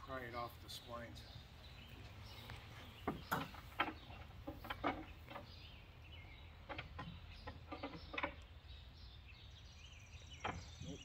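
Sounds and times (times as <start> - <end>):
birds chirping faintly: 0.0 - 11.0
pry bar metallic knocks and clanks: 3.0 - 5.6.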